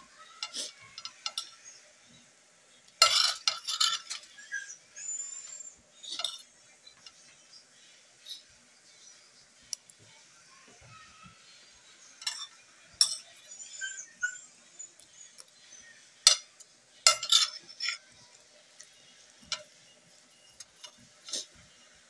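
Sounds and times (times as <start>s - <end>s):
cutlery clinking on ceramic plate: 0.4s - 1.6s, 3.0s - 4.4s, 6.1s - 7.2s, 12.2s - 13.4s, 16.2s - 18.1s.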